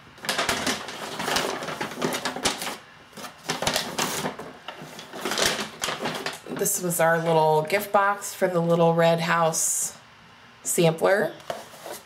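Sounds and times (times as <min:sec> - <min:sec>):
packaging rustling and crinkling: 0:00.2 - 0:06.9.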